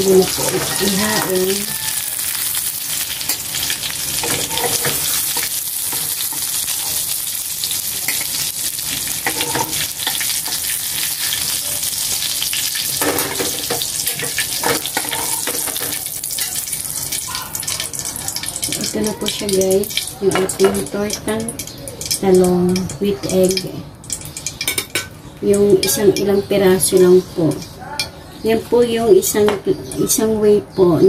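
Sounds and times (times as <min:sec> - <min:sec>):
metal spatula scraping pan: 0:00.0 - 0:07.1, 0:08.1 - 0:11.5, 0:13.0 - 0:16.6
food sizzling in hot oil: 0:00.0 - 0:25.0.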